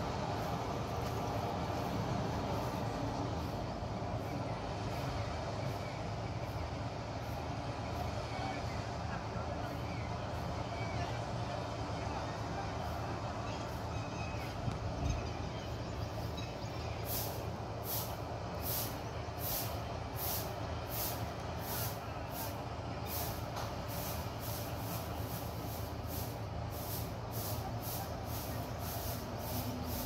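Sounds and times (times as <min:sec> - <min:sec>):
combine harvester engine drone: 0:00.0 - 0:30.0
pulsing high hiss: 0:15.7 - 0:30.0.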